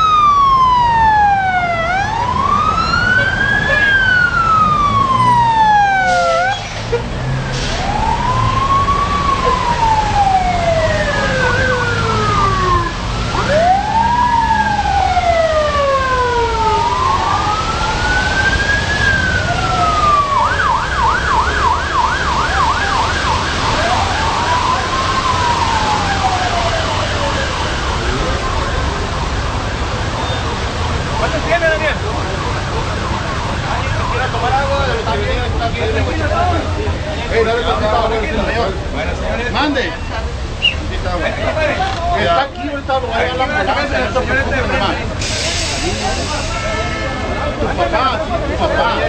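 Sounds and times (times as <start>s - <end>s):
siren fast yelp: 0.0s - 6.7s, 7.8s - 30.6s
siren wailing: 0.0s - 6.7s, 7.7s - 36.4s
second siren: 0.0s - 35.2s.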